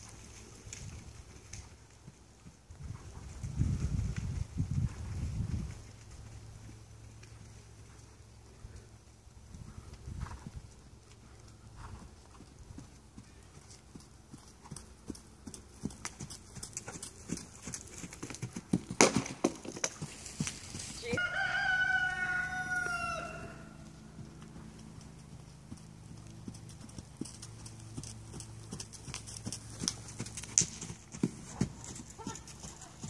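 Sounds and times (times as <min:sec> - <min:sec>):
horse hoofbeats on sand: 0:11.8 - 0:21.4, 0:24.2 - 0:33.0.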